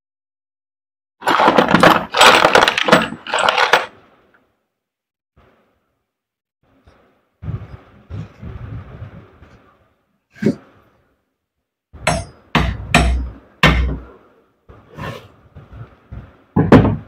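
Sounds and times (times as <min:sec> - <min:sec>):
hand hammer knocking: 0:12.0 - 0:14.1.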